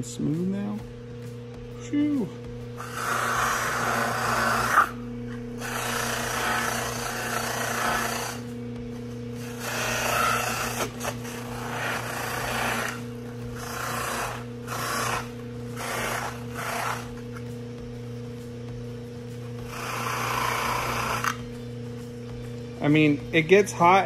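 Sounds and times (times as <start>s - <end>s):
electric motor humming: 0.0s - 24.0s
plastic rasping against buffing wheel: 9.5s - 17.4s.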